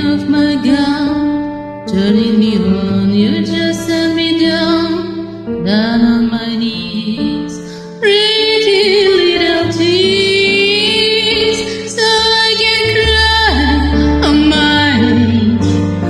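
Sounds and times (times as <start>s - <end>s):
pop backing track: 0.0s - 16.0s
woman singing karaoke: 0.0s - 16.0s.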